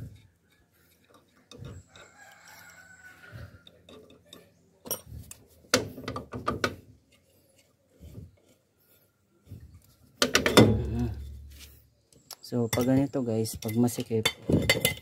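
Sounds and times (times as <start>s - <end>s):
metal clicks and knocks: 3.6s - 6.8s, 10.2s - 11.4s, 12.7s - 15.0s.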